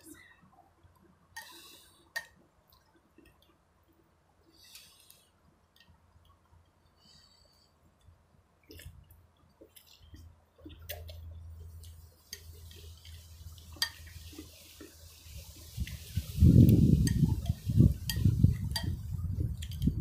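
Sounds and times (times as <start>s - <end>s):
chopsticks and spoon clicking bowl: 18.0s - 19.0s.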